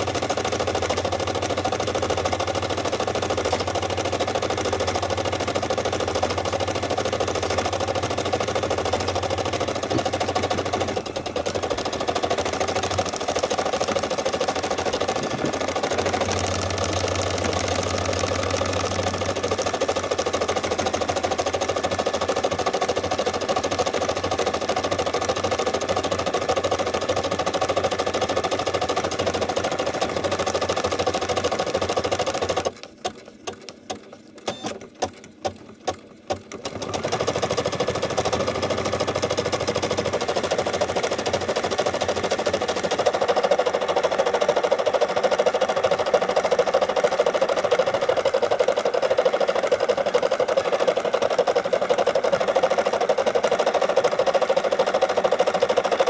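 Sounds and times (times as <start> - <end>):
embroidery machine stitching: 0.0 - 56.0.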